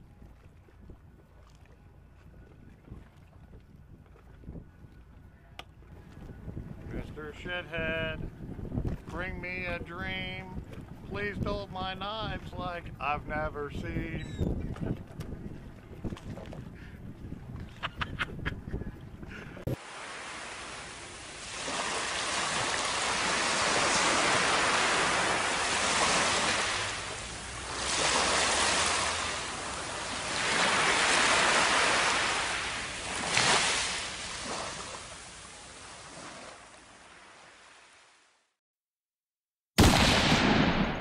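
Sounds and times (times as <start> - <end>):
surf washing up a beach: 19.8 - 38.2
sudden loud hit: 39.8 - 41.0.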